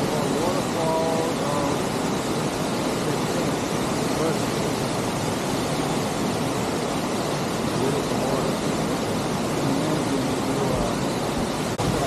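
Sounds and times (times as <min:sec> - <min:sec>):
waterfall rushing into pool: 0:00.0 - 0:12.0.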